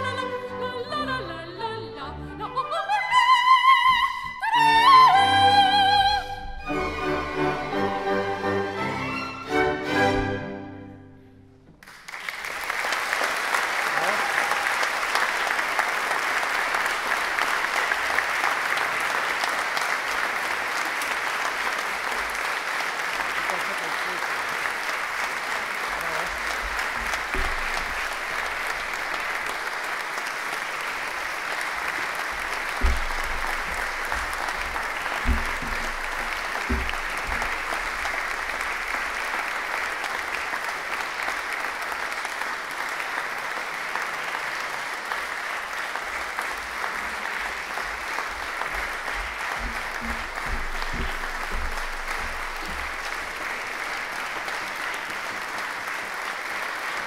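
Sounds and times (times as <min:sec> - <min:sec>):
audience applauding: 0:11.8 - 0:57.0
dull thumps: 0:26.6 - 0:29.4, 0:32.3 - 0:39.2, 0:48.3 - 0:53.9.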